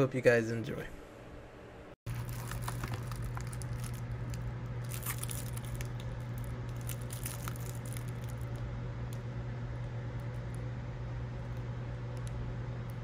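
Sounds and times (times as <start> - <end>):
steady low hum: 0.0 - 13.0
bubble wrap crinkling: 2.1 - 8.6.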